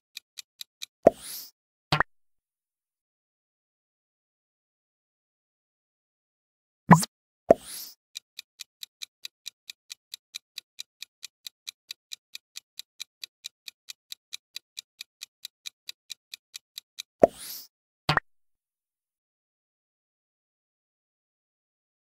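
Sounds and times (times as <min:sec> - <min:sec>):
clock-like ticking: 0:00.1 - 0:01.0, 0:07.9 - 0:17.7.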